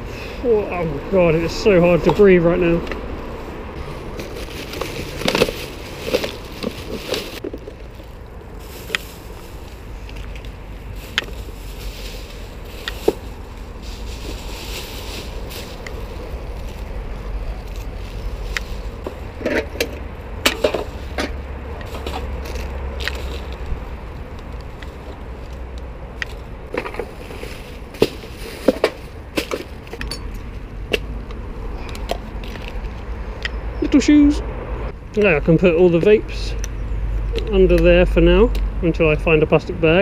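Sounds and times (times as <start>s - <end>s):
stroller wheels rumbling: 0.0s - 30.8s.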